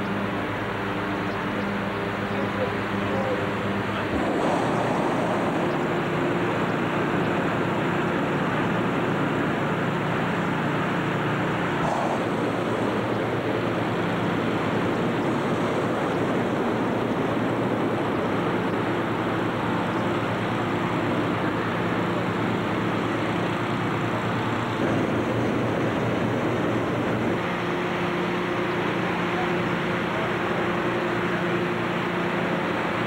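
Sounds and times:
faint engine hum: 0.0 - 33.0
hot air balloon burners roaring: 0.0 - 33.0
inflation fans running: 0.0 - 33.0.

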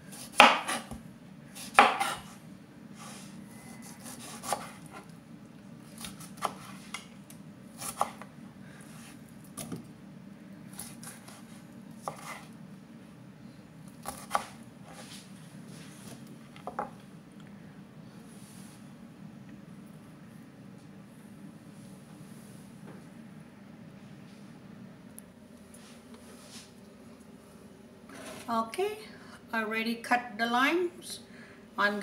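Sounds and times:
knife slicing on cutting board: 1.6 - 2.4, 3.8 - 5.0, 12.0 - 12.5.

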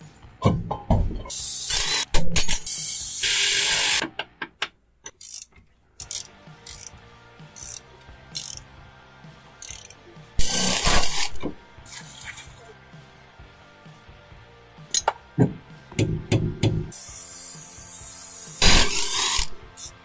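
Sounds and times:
socket ratchet clicking: 5.1 - 8.6, 9.6 - 10.0.

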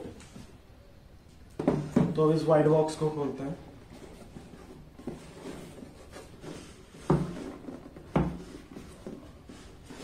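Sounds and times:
cardboard box rubbing and scraping: 3.9 - 10.0.

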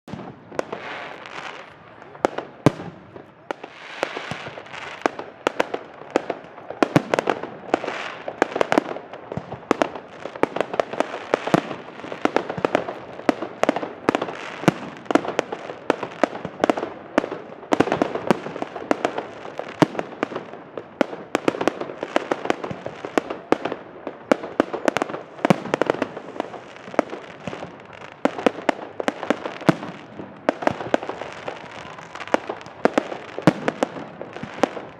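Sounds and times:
fireworks bangs and crackles: 0.1 - 34.9.

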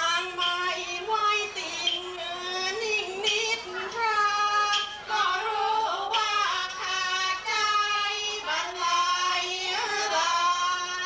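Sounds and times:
woman singing: 0.0 - 11.0.

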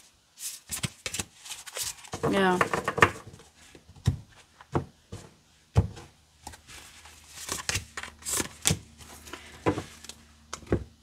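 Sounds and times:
papery rustle of cards: 0.4 - 2.5, 6.5 - 10.2
cards tapping on wooden table: 2.1 - 3.3.

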